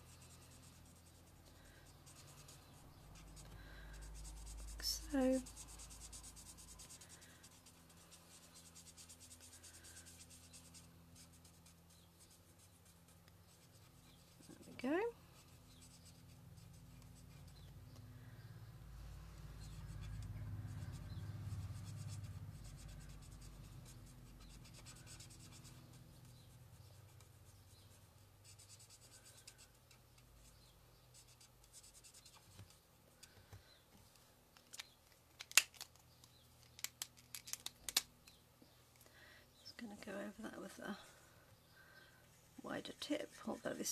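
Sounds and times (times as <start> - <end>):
scratching and rubbing on paper: 0.0 - 17.8, 19.4 - 32.8, 42.6 - 43.9.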